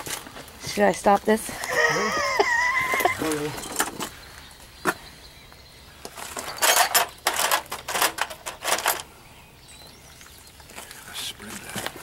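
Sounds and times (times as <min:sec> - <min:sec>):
hand tool metal scraping and clicking: 0:06.1 - 0:09.1.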